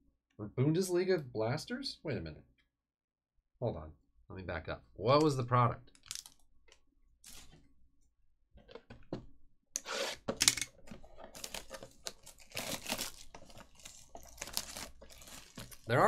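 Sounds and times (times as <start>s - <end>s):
plastic shrink wrap tearing: 11.3s - 16.0s.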